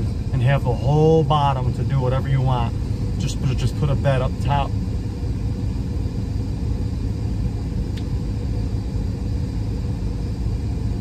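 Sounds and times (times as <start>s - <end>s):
van engine idling: 0.0s - 11.0s.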